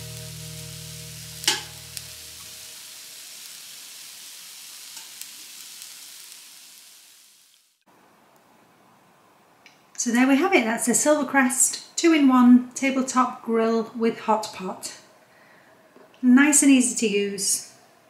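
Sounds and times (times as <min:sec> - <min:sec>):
food sizzling on a grill: 0:00.0 - 0:07.8.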